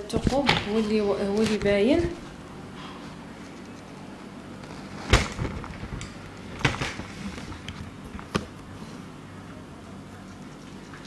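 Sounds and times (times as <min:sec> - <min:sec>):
foil rustling: 0:04.6 - 0:08.4.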